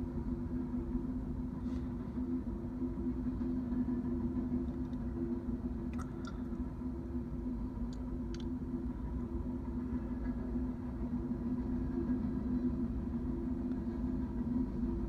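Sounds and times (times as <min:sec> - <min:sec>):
freight train rumbling: 0:00.0 - 0:15.0.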